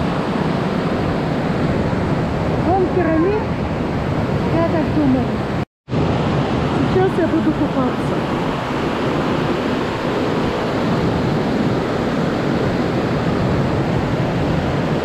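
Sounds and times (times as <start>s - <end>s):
waterfall roaring: 0.0s - 15.0s.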